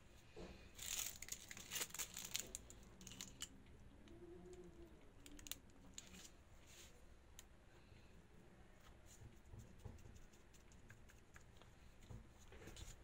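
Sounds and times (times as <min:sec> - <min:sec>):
rustling: 0:00.2 - 0:03.5.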